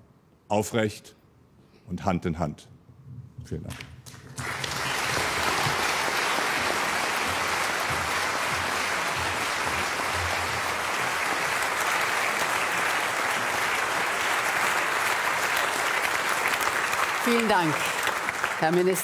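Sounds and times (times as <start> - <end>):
audience applauding: 4.1 - 19.0.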